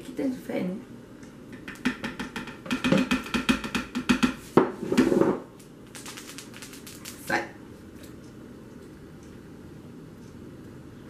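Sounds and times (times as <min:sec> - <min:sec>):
metal spoon knocking plastic jar: 0:01.6 - 0:04.4.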